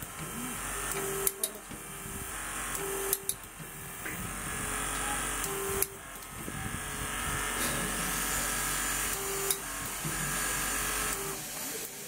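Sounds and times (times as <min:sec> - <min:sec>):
torque wrench motor hum: 0:00.0 - 0:12.0
sharp clicks: 0:02.7 - 0:03.6.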